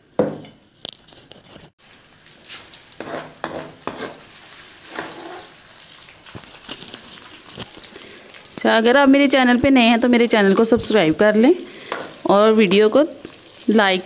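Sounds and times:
onions sizzling in hot oil: 1.8s - 14.0s
metal ladle scraping a pan: 3.0s - 5.6s, 11.7s - 12.8s.

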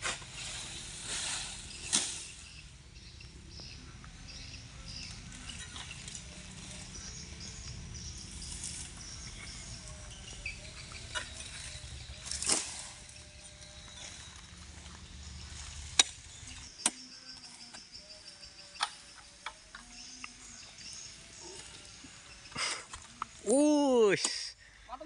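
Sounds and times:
sickle cracking palm fronds: 0.1s - 2.6s, 7.7s - 17.7s
faint chirping: 0.4s - 25.0s.

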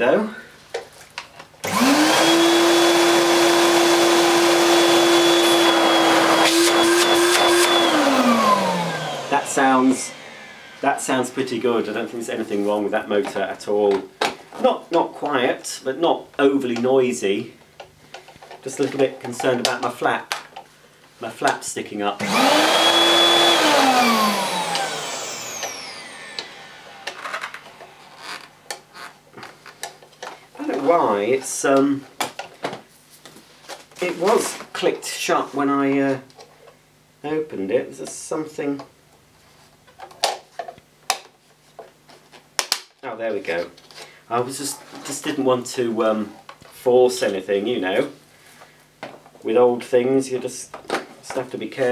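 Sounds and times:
handheld vacuum cleaner running: 1.6s - 11.8s, 22.2s - 29.2s.

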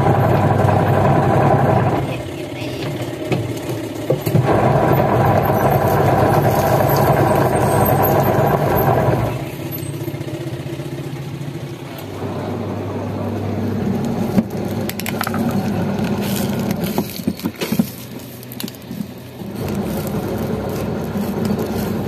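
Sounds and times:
washing machine motor humming: 0.0s - 9.7s, 12.0s - 17.0s, 19.2s - 22.0s.

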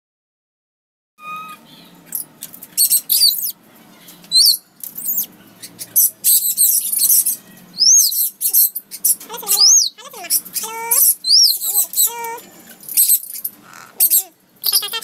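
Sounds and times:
parrot whistles: 1.2s - 1.7s, 4.3s - 10.0s, 11.0s - 12.2s
parrots screeching and squawking: 1.2s - 1.9s, 2.8s - 3.6s, 4.3s - 15.0s.

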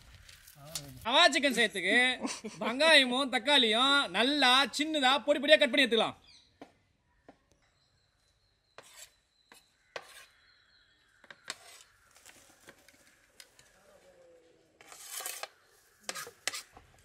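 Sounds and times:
knife scraping: 8.8s - 10.4s, 11.5s - 12.0s, 14.8s - 16.7s.

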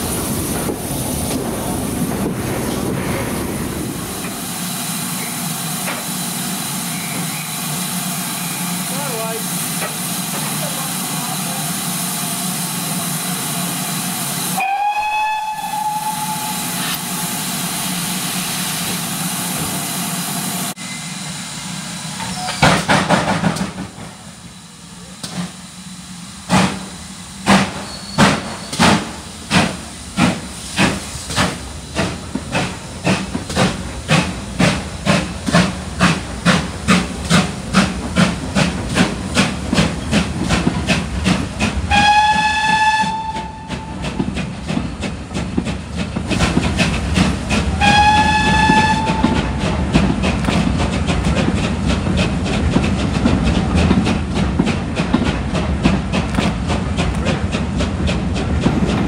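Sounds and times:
steam locomotive exhaust beats: 0.0s - 59.0s
train running noise: 0.0s - 59.0s
train whistle blasts: 14.5s - 17.1s, 41.9s - 44.0s, 47.8s - 49.6s.

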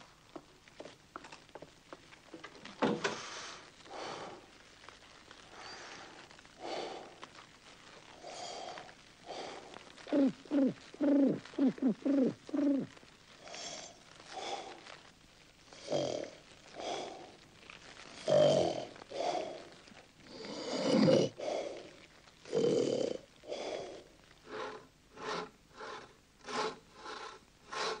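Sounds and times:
bear snoring: 8.2s - 13.9s, 15.8s - 17.3s, 18.2s - 19.7s, 20.3s - 28.0s.

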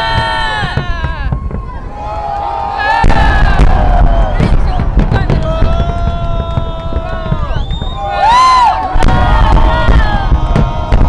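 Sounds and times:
fireworks bursting and crackling: 0.0s - 11.0s
low rumble: 3.0s - 11.0s.

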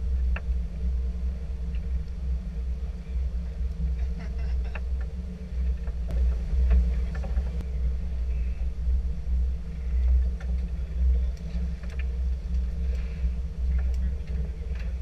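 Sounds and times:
boat engine rumble: 0.0s - 15.0s
faint clicks: 10.0s - 15.0s.

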